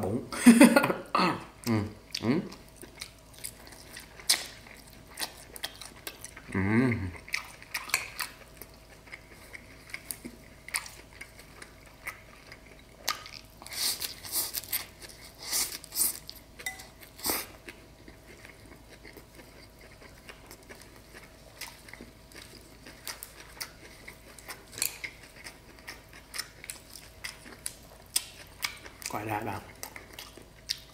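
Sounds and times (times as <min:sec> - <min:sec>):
chewing: 0:01.6 - 0:30.9.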